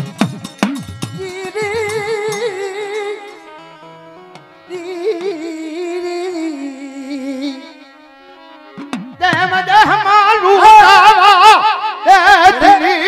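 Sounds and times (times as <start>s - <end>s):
drum strokes: 0.0s - 2.5s.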